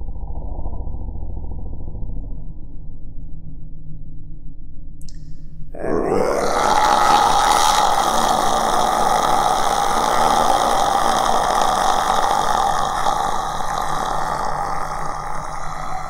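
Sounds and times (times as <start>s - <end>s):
rasping ghost voice: 5.8s - 16.0s.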